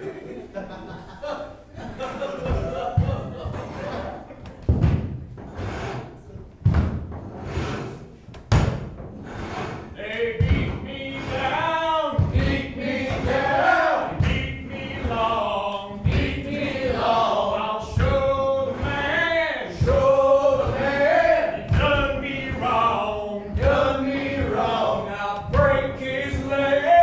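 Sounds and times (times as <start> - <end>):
heavy rhythmic thumps: 0.8 - 27.0
men singing in harmony: 10.0 - 27.0.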